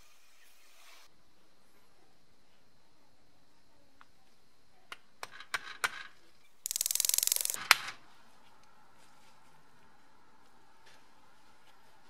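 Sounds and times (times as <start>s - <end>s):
ratcheting clicks: 6.6s - 7.8s
small metal gear clicks: 6.7s - 7.8s.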